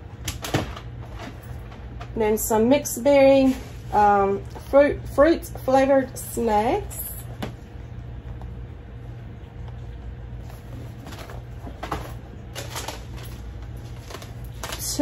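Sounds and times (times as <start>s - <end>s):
steady low hum: 0.0s - 15.0s
packaging rustling and crinkling: 10.4s - 15.0s.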